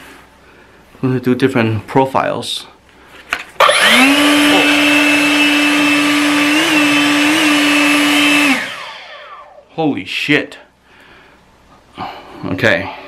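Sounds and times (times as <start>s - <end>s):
leaf blower whine: 3.6s - 9.7s.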